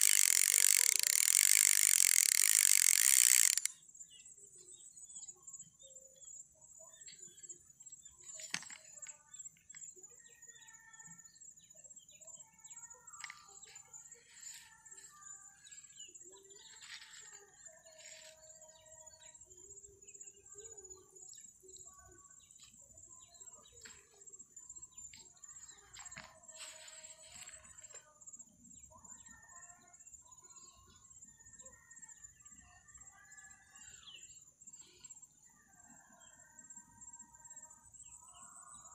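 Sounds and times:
high-pitched insect buzz: 0.0 - 3.7
sharp click: 0.0 - 3.7.

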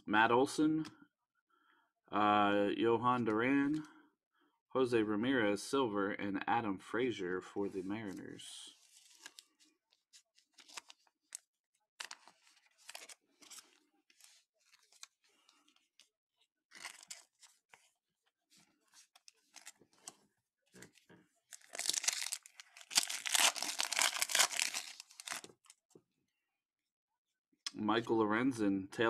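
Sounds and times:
foil wrapper tearing and crinkling: 16.7 - 17.4, 21.6 - 25.5.

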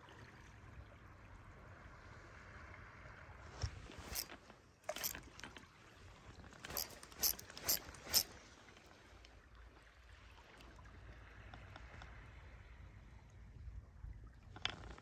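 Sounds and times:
water lapping: 3.6 - 12.0.

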